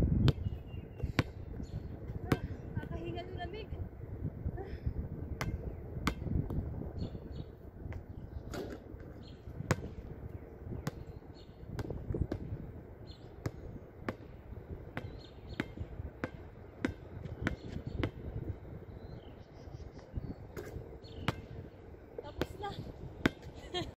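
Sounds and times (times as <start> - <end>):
basketball bouncing on hard court: 1.0 - 1.4, 2.1 - 3.1, 9.7 - 10.0, 11.7 - 12.6, 13.4 - 14.3, 15.0 - 18.3, 20.6 - 21.5, 23.2 - 23.5.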